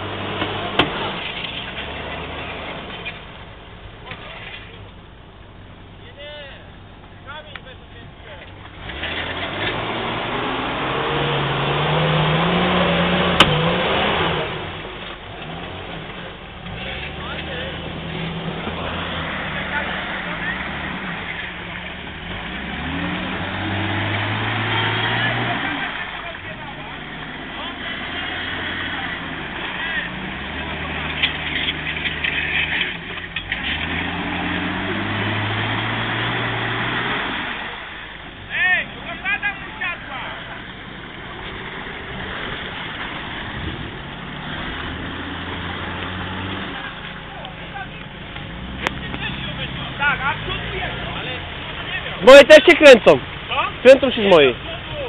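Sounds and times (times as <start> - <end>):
vehicle pushing through water: 8.3 - 55.0
suv engine revving hard: 8.7 - 55.0
sharp crack: 12.8 - 22.6.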